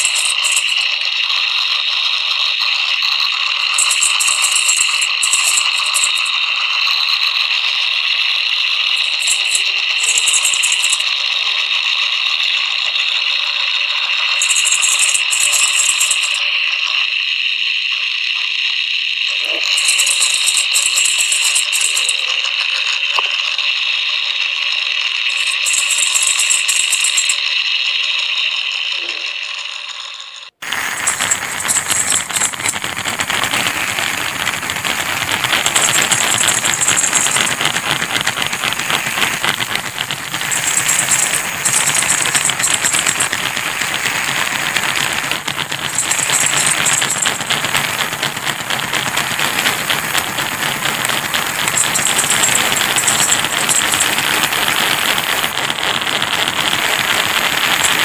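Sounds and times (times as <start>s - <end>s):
coarse rattling noise: 0.0s - 58.0s
harsh noisy rattling: 0.0s - 58.0s
shaker-like rattle bursts: 0.0s - 58.0s.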